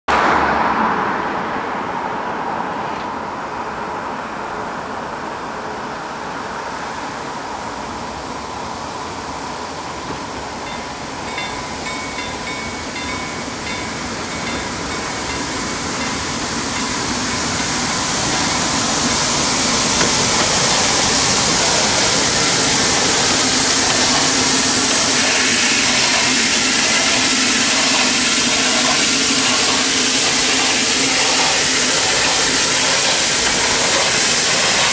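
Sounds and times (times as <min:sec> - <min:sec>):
steam locomotive running: 0:06.1 - 0:34.9
level crossing bells ringing: 0:10.0 - 0:34.0.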